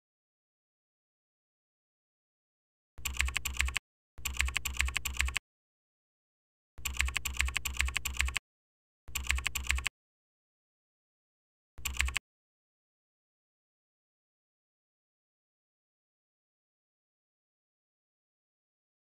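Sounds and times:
computer keyboard typing: 3.0s - 5.4s, 6.8s - 8.4s, 9.1s - 9.9s, 11.8s - 12.2s.

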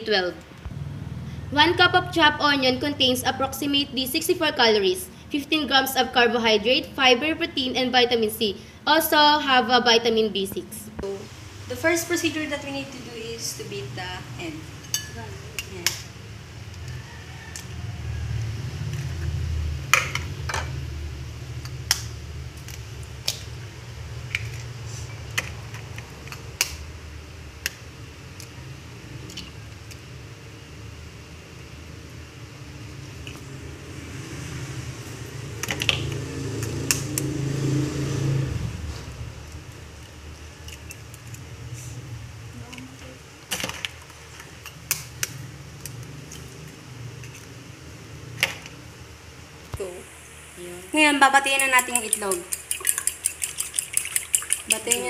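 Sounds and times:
low steady hum: 0.0s - 55.0s
eggs cracked on ceramic bowl: 51.8s - 55.0s.

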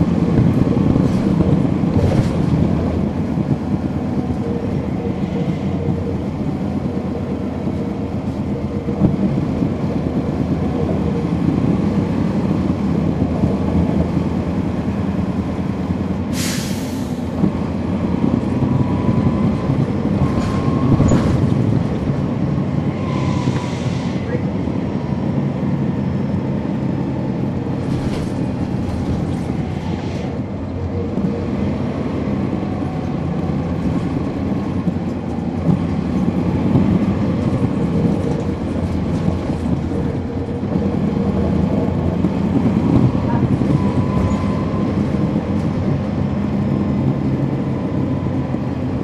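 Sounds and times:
bus diesel engine running: 0.0s - 49.0s
road rumble: 0.0s - 49.0s
hiss: 16.3s - 17.2s.

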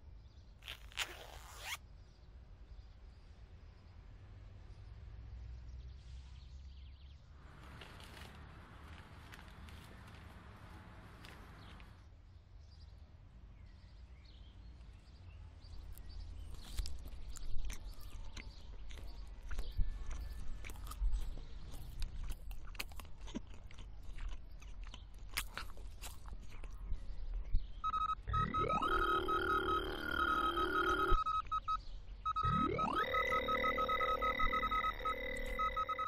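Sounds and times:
person chewing crunchy sandwich: 15.8s - 31.6s
mouth clicks: 15.8s - 36.0s.

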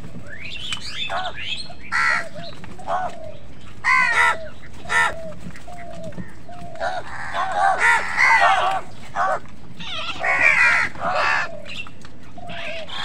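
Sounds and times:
crows cawing: 1.1s - 6.0s, 6.7s - 11.7s, 12.4s - 13.0s.

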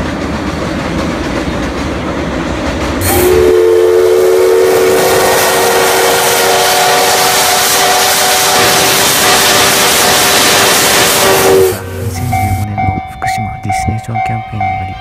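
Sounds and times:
train rumbling over bridge: 0.0s - 15.0s
steam hissing: 3.0s - 12.6s
steam whistling tones: 3.0s - 12.9s.

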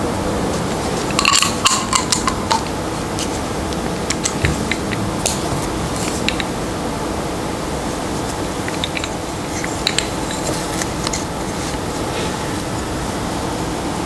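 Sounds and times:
small metal parts clicking: 1.1s - 3.3s, 8.7s - 11.3s.

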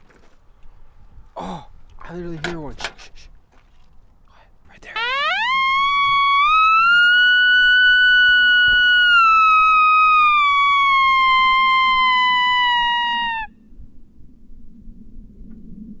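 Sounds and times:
coyote howling: 5.0s - 13.5s.

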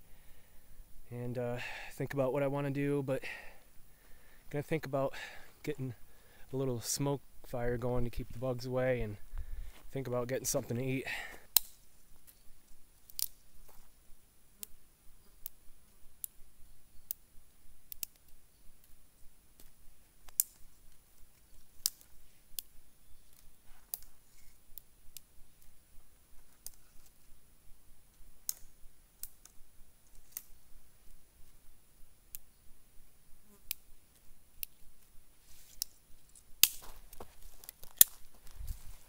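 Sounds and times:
dry twigs snapping: 11.5s - 11.8s, 13.0s - 13.4s, 17.9s - 19.0s, 19.6s - 22.7s, 23.3s - 24.1s, 26.6s - 27.1s, 28.4s - 30.6s, 35.7s - 38.8s.

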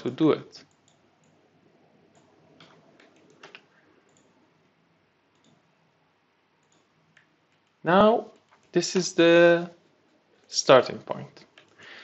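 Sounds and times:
computer mouse clicks: 0.6s - 1.4s, 2.1s - 4.4s, 5.3s - 5.7s, 6.6s - 8.8s, 11.4s - 11.8s.

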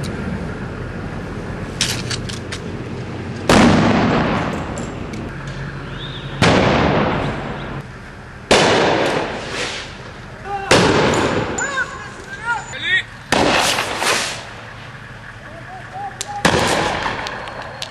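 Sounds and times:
loud echoing bangs: 3.4s - 7.8s, 8.5s - 9.5s, 10.5s - 12.2s, 13.1s - 17.8s.

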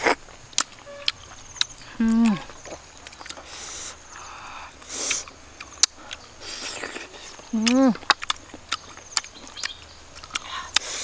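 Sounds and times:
slurping snails from shells: 0.0s - 11.0s
person humming mm: 2.0s - 2.5s.

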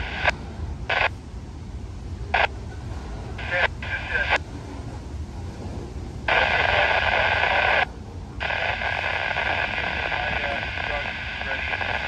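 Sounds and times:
radio static hiss: 0.0s - 4.8s, 6.1s - 12.0s.

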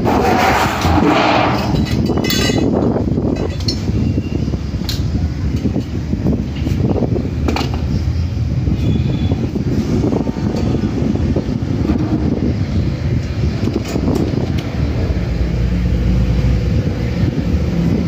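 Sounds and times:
low rumble: 0.0s - 3.4s, 9.6s - 18.0s
metal parts clinking: 1.4s - 3.9s.

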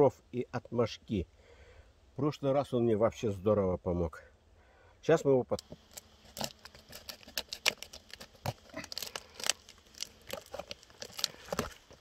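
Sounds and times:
knife cutting fungus crackling: 5.5s - 12.0s.

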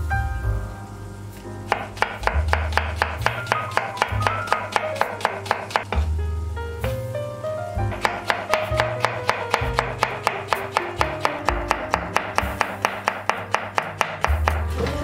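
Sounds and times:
knife chopping on cutting board: 1.7s - 6.1s, 7.9s - 14.9s.

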